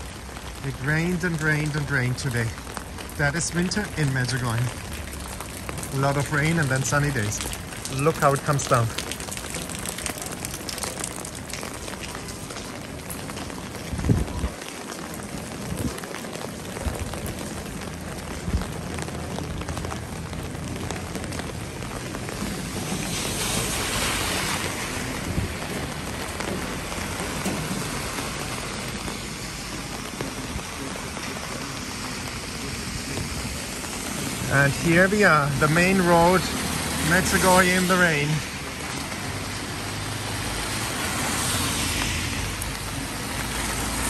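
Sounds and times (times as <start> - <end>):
car passing on wet road: 0.0 - 44.0
rain on an umbrella: 0.0 - 44.0
rain splashing on pavement: 0.0 - 44.0.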